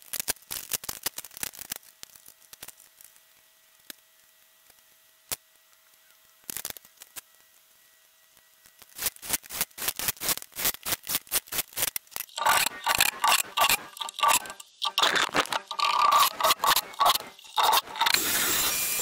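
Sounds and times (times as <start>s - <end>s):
scraping strokes: 12.2s - 19.0s.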